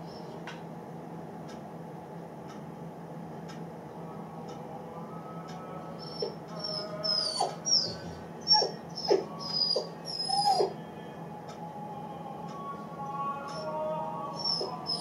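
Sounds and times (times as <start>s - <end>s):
puppy whining and whimpering: 6.0s - 10.8s, 14.3s - 15.0s.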